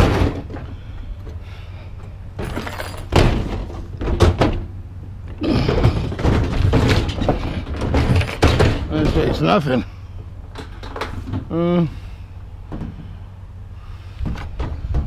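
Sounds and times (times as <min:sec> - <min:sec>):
scraping on truck bed: 0:00.0 - 0:11.6
appliance thudding and knocking: 0:03.1 - 0:04.7, 0:05.5 - 0:09.6.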